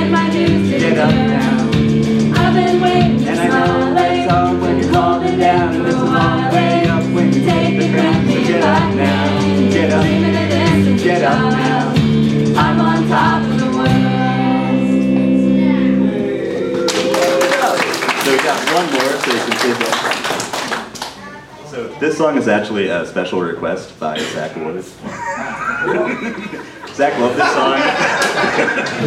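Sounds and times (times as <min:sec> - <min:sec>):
group of voices singing: 0:00.0 - 0:16.9
live band with guitar: 0:00.0 - 0:17.2.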